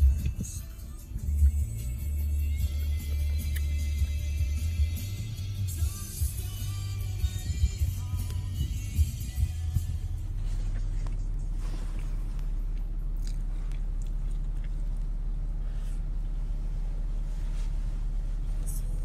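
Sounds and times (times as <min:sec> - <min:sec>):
car cabin hum: 0:00.0 - 0:19.0
faint chewing: 0:10.4 - 0:16.0.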